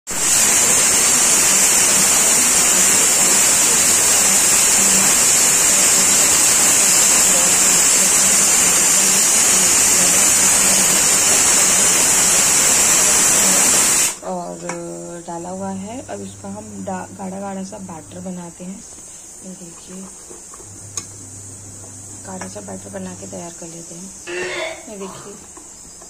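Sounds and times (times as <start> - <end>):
loud rushing hiss: 0.1 - 14.3.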